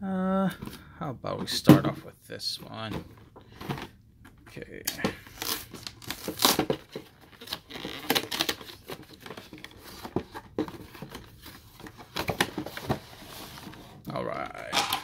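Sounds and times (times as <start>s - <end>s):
packaging crinkling and tearing: 4.9s - 13.8s.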